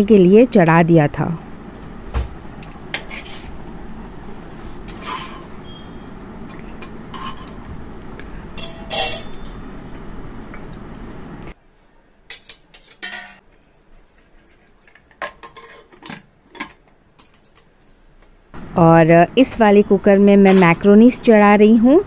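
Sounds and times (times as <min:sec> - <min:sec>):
steady background hiss: 0:00.0 - 0:13.1, 0:17.0 - 0:22.0
metal lid clanks: 0:08.6 - 0:09.6.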